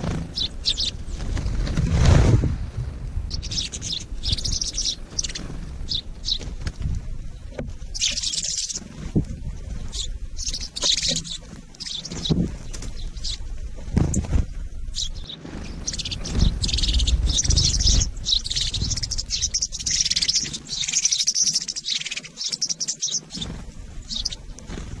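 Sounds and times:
birds chirping: 0.0s - 2.1s, 3.2s - 25.0s
low rumble: 0.0s - 7.5s.

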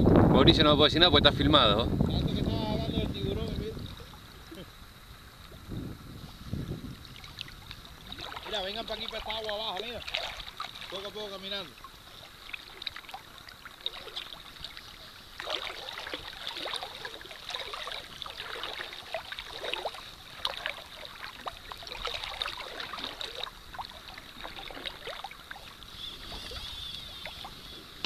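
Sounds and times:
seawater splashing around wading legs: 6.4s - 28.0s.

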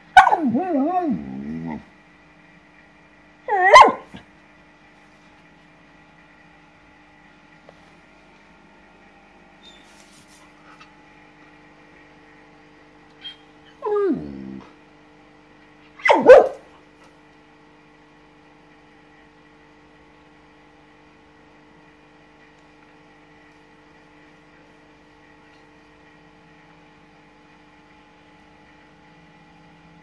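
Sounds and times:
dog yelping bark: 0.1s - 0.6s, 3.5s - 4.2s, 16.0s - 16.7s
dog whining: 0.1s - 1.8s, 3.5s - 4.2s, 13.2s - 14.8s, 16.0s - 16.6s.

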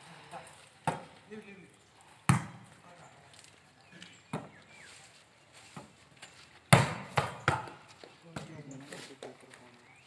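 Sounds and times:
palm slapping volleyball: 0.8s - 1.1s, 2.2s - 2.7s, 6.7s - 7.8s.

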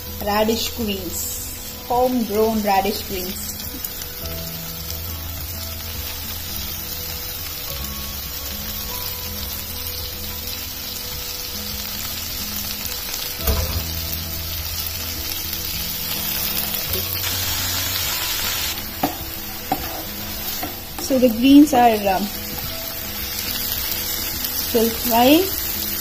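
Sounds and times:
vegetables sizzling in oil: 0.0s - 26.0s
knock on pan: 13.4s - 14.2s.

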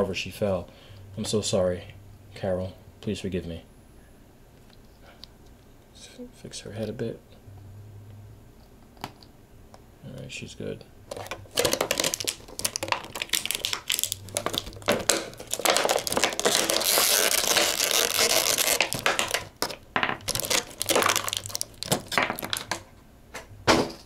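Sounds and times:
plastic packaging crinkling: 11.1s - 22.8s.

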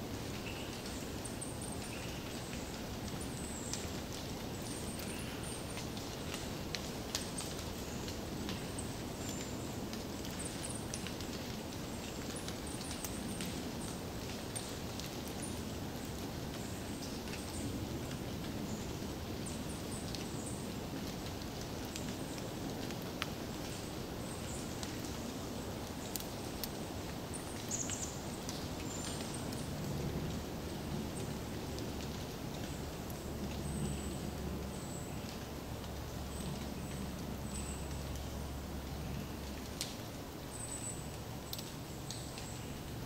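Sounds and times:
low rush of background noise: 0.0s - 43.0s
small ticks and taps: 41.5s - 42.5s.

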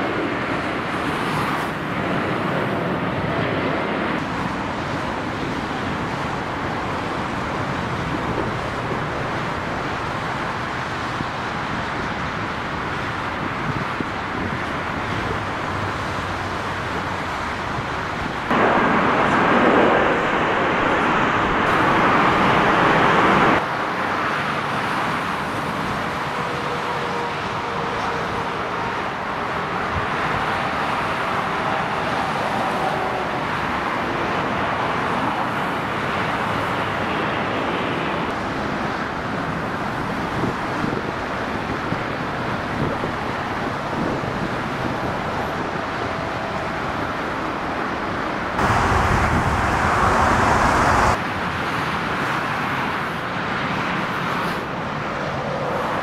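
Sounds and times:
jet engines rushing: 0.0s - 26.7s, 43.3s - 53.2s.

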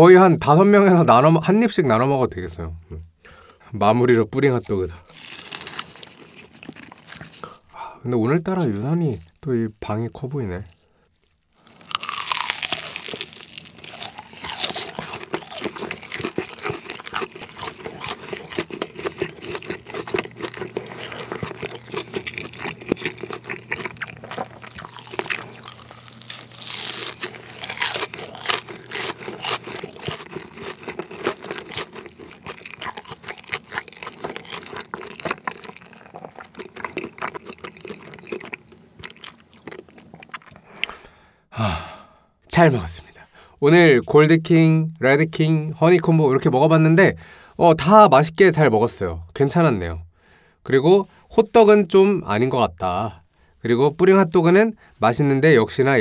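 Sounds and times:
crunching and chewing food: 4.6s - 7.8s, 8.4s - 41.2s.

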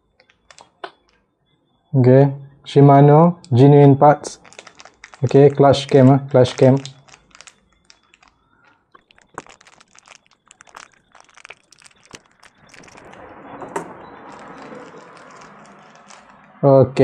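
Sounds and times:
small clicks and crinkles: 0.0s - 1.8s, 4.2s - 16.6s
rustling: 4.2s - 16.6s.

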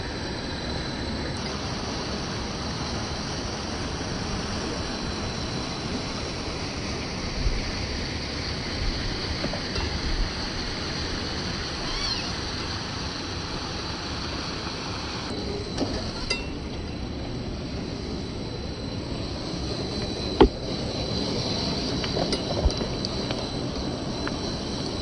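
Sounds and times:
faint chirps: 11.8s - 12.4s.

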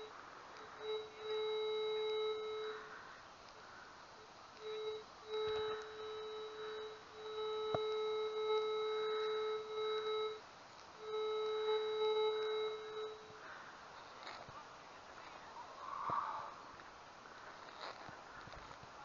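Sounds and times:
metal detector beep: 0.0s - 3.0s, 4.5s - 14.5s.

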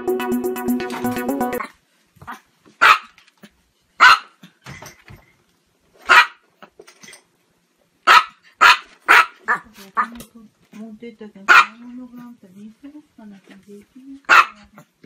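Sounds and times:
small dog barking: 2.3s - 3.2s, 4.0s - 4.4s, 6.1s - 6.4s, 8.0s - 10.2s, 11.5s - 11.8s, 14.3s - 14.9s.

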